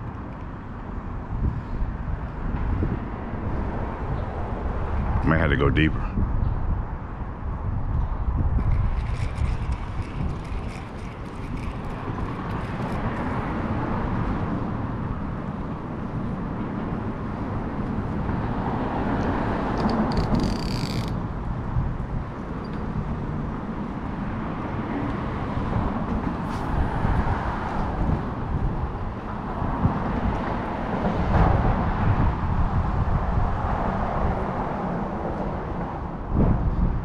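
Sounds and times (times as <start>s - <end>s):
wind buffeting microphone: 0.0s - 37.0s.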